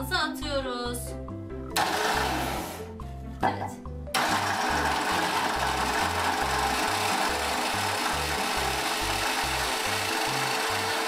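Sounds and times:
hand blender motor running: 0:01.8 - 0:02.8, 0:04.2 - 0:11.0.

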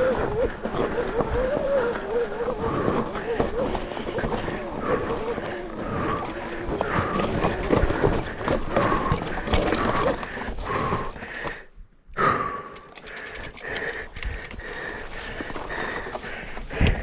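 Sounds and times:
rider panting hard: 0:00.0 - 0:17.0
rapid ticking: 0:12.8 - 0:15.0.

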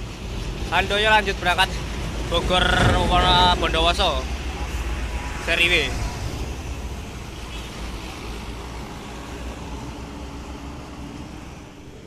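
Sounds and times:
road traffic noise: 0:00.0 - 0:12.0
coach passing: 0:00.9 - 0:06.4.

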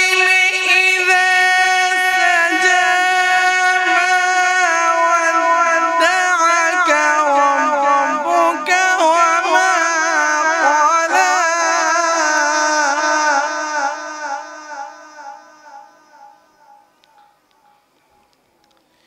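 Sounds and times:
man reciting melodically: 0:00.0 - 0:17.8.

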